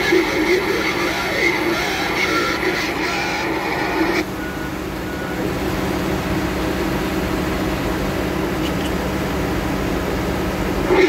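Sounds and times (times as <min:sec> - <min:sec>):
heavy diesel engine drone: 0:00.0 - 0:11.0.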